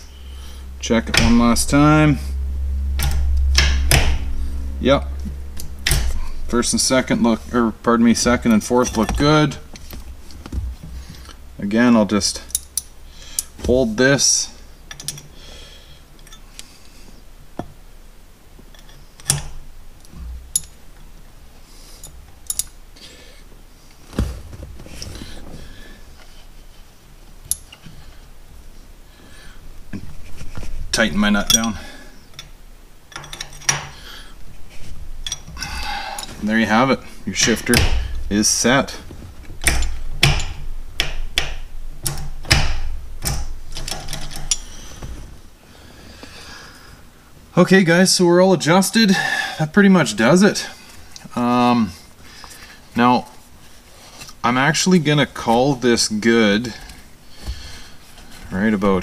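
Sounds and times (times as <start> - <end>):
handling noise: 0.0 - 14.2, 23.8 - 28.9, 29.6 - 45.6
wrenches clicking on metal nuts: 39.6 - 44.7.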